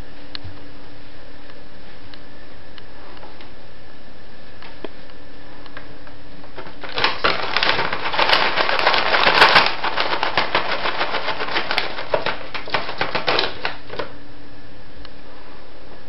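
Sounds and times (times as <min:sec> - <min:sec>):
cat clawing clicks and scratches: 0:06.6 - 0:14.1.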